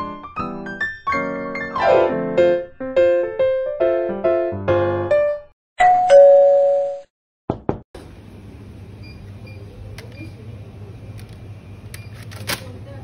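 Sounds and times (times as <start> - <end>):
two-note doorbell chime: 5.8 - 7.1
low hum of shop ambience: 8.0 - 13.0.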